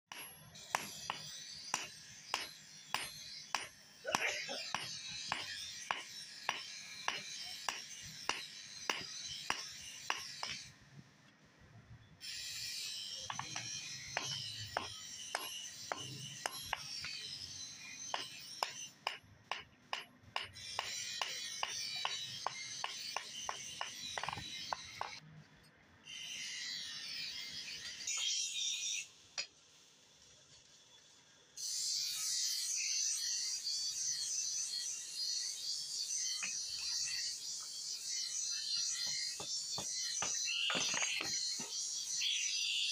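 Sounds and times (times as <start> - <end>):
hammer striking hot steel on anvil: 0.1 - 10.7, 12.6 - 25.2, 38.8 - 41.8.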